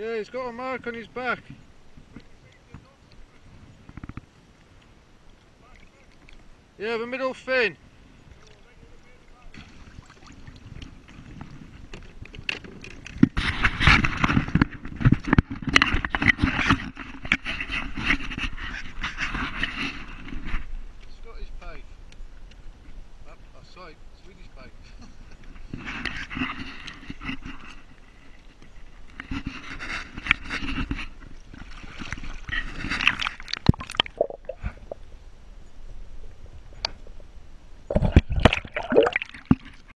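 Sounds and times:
water splashing: 8.4s - 11.4s, 31.4s - 35.1s, 37.9s - 39.9s
water sloshing and splashing: 8.4s - 20.4s, 26.2s - 35.0s, 37.9s - 39.9s.

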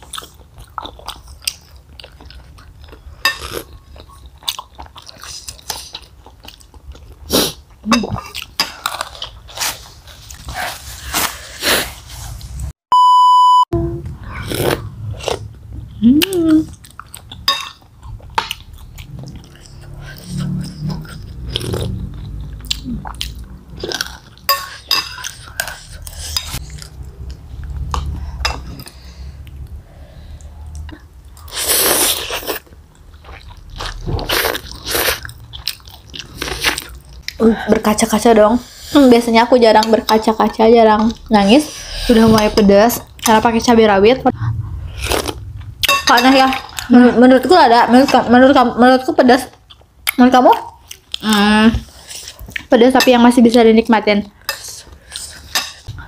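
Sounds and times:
chewing: 0.0s - 10.8s, 16.2s - 29.7s, 30.4s - 37.4s, 49.5s - 52.7s
electronic beep: 12.9s - 13.8s.

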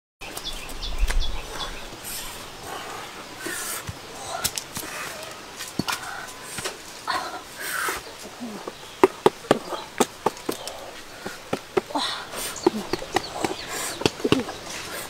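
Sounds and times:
twigs snapping: 3.9s - 6.8s.

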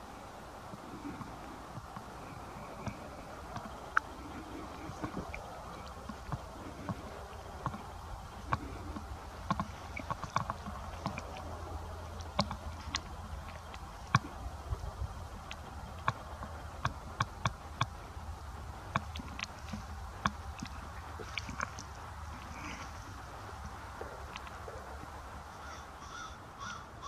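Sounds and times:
sharp clicks and ticks: 2.8s - 22.9s.

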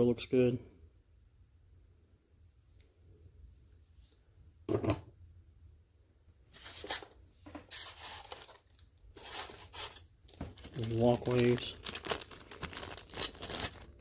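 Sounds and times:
thump of part set down: 4.7s - 5.1s
plastic bag rustling and crinkling: 6.6s - 14.0s.

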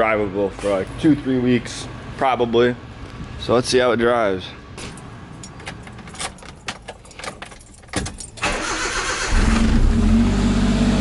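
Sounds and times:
keys clicking in ignition: 5.3s - 9.3s.

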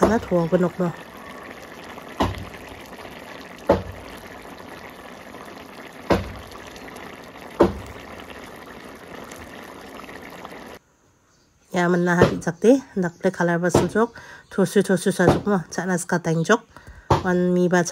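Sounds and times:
bubbles bursting with pops: 0.0s - 10.8s
curry bubbling in a wok: 0.0s - 10.8s.

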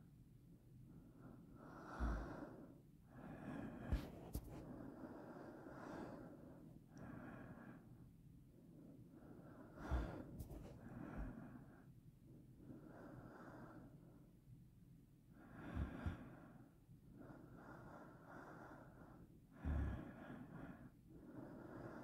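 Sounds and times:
person breathing close to microphone: 0.9s - 8.0s, 8.6s - 11.9s, 15.4s - 22.0s
breath puffing against microphone: 3.8s - 4.7s, 9.9s - 10.8s.

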